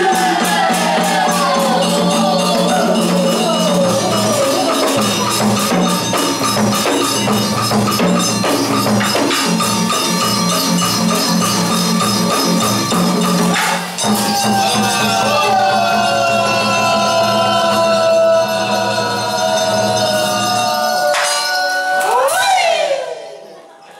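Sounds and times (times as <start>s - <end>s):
fast busy percussion: 0.0s - 23.5s
gliding melody line: 1.2s - 7.5s.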